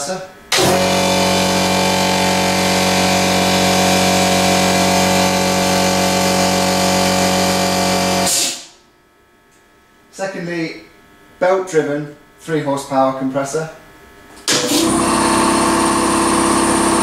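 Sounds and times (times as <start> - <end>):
air compressor running: 0.5 - 8.8, 14.3 - 17.0.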